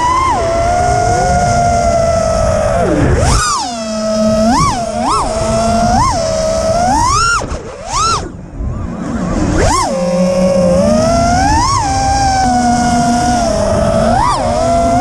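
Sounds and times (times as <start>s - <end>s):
quadcopter motors whining: 0.0s - 15.0s.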